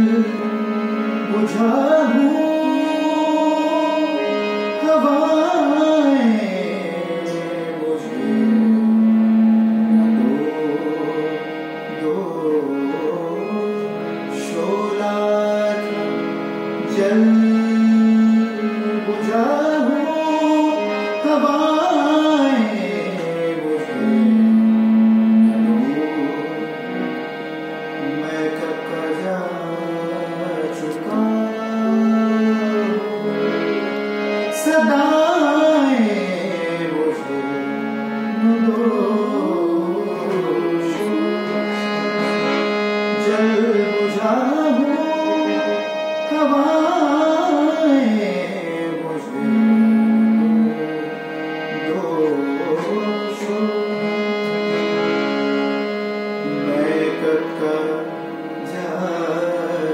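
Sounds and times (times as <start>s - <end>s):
man singing: 0.0s - 27.3s, 28.0s - 59.9s
harmonium chords: 0.0s - 59.9s.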